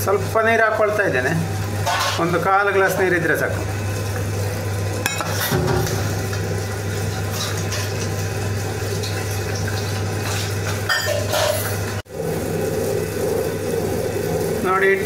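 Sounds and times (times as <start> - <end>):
wet grinder motor humming: 11.7 - 15.0.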